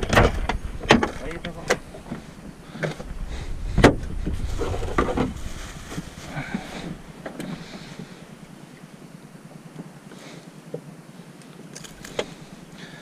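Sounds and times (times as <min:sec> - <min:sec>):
low rumble: 0:00.0 - 0:08.8
fishing gear knocking and rattling: 0:11.7 - 0:12.4.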